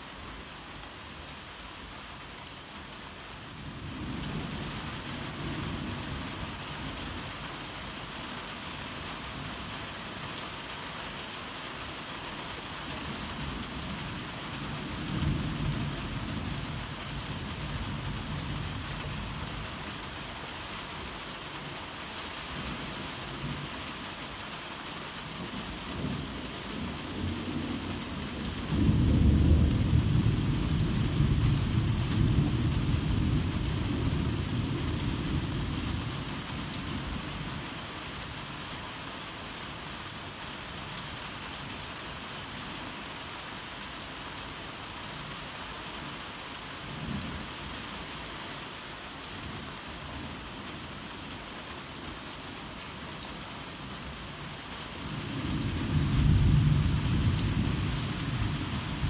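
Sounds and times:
heavy rain falling: 0.0 - 59.0
thunder rumbling: 26.0 - 35.7, 55.4 - 59.0.

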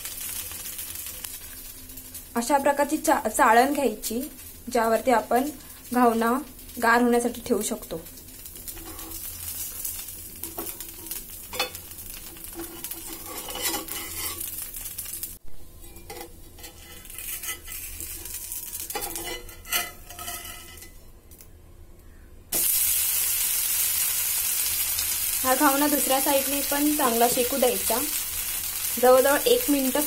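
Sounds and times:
light sizzle: 0.0 - 30.0
loud steady sizzle: 0.0 - 30.0
spatula scraping and tapping pan: 10.4 - 14.5, 15.8 - 21.0.

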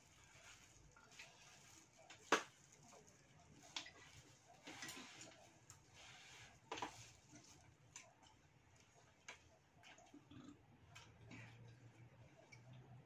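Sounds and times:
rustling: 0.0 - 7.8.

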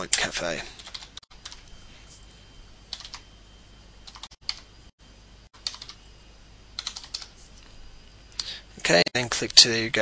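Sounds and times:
typing on computer keyboard: 0.8 - 1.6, 2.9 - 3.2, 4.1 - 4.6, 5.6 - 6.0, 6.8 - 7.3.

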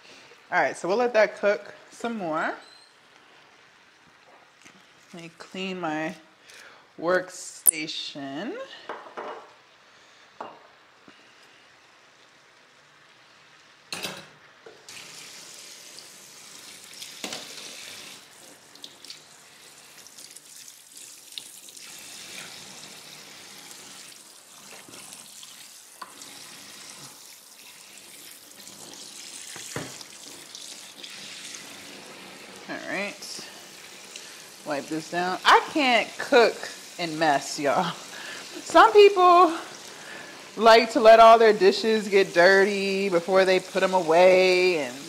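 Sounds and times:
dishes knocking: 8.9 - 9.5, 10.4 - 10.7
tap running into sink: 29.5 - 30.2.

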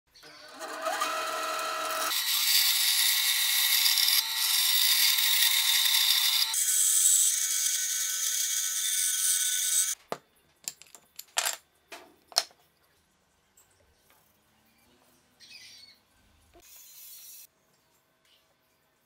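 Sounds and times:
band saw cutting wood: 0.3 - 10.0.

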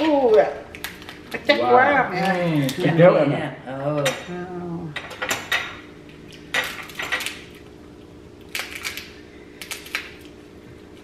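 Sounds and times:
lobster shell cracking: 0.0 - 1.6, 6.3 - 11.0.

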